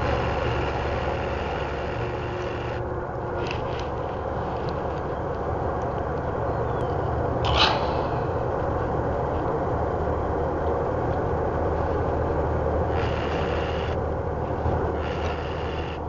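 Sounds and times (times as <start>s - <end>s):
jet engines rumbling: 0.0s - 16.0s.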